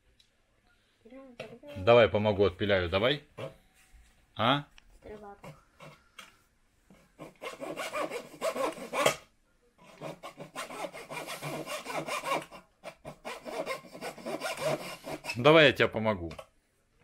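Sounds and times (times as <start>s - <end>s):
handsaw cutting wooden stick: 6.9s - 9.2s, 9.8s - 15.7s.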